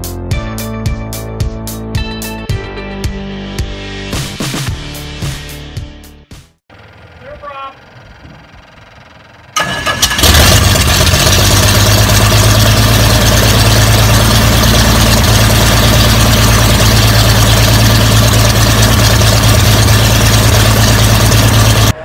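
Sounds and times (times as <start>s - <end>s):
aircraft engine starting and running: 6.7s - 22.0s.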